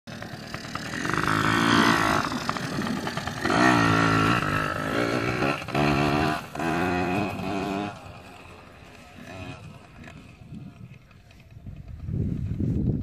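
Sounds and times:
dirt bike engine revving: 0:00.1 - 0:11.5.

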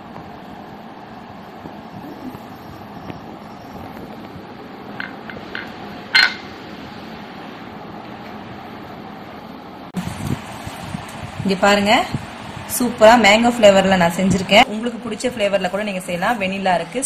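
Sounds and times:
steady background hum: 0:00.0 - 0:17.0
sharp ringing clink: 0:06.2 - 0:06.5.

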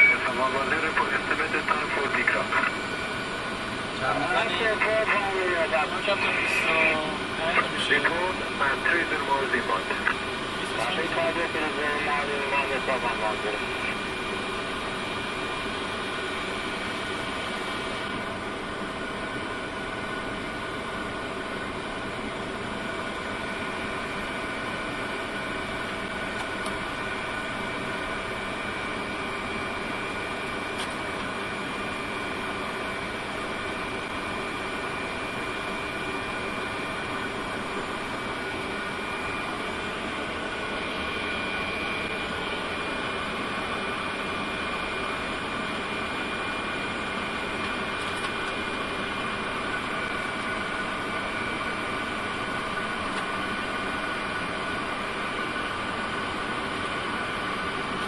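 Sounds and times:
thin high whine: 0:00.0 - 0:14.9.

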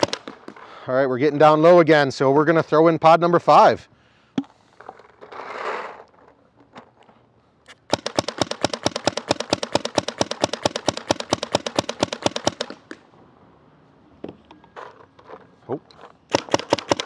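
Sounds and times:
paintball marker firing rapidly: 0:00.0 - 0:00.5, 0:07.7 - 0:12.9, 0:16.3 - 0:17.0.

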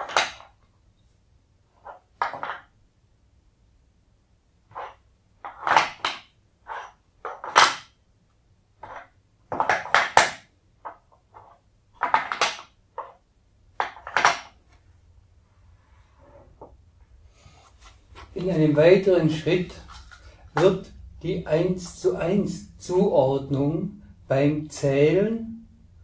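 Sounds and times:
wooden tiles clacking: 0:00.0 - 0:00.6, 0:01.7 - 0:02.8, 0:04.7 - 0:08.0, 0:08.8 - 0:14.8, 0:19.4 - 0:21.4
soft handling sounds: 0:14.6 - 0:21.1.

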